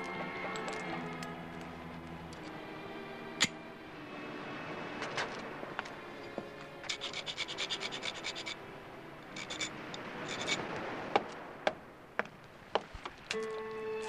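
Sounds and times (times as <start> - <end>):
tool scraping iron bar: 6.8 - 8.6, 9.3 - 10.6.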